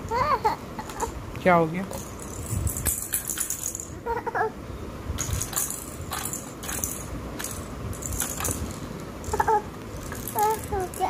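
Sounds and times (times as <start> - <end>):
plastic toy rattle shaken: 1.9 - 4.0, 5.2 - 11.0.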